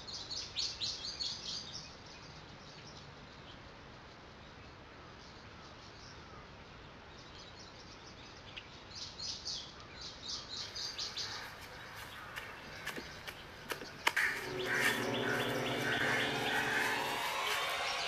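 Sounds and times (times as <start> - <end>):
birds chirping: 9.4 - 18.0.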